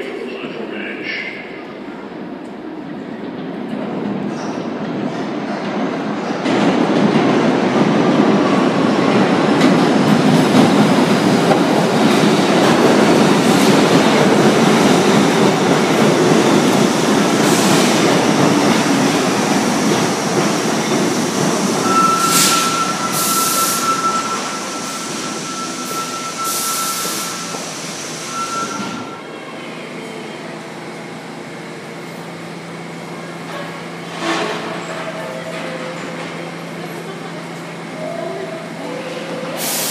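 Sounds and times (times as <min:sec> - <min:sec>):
subway train wheels rumbling on rail: 0:00.0 - 0:39.9
high brake squeal: 0:21.8 - 0:29.3
short air hisses: 0:39.6 - 0:39.9.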